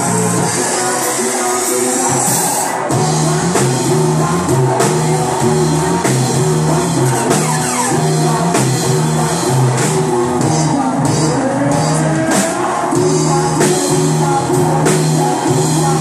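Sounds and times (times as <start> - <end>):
drums: 0.0 - 16.0
electric bass line: 0.0 - 16.0
keyboard: 0.0 - 16.0
people singing into microphones: 0.0 - 16.0.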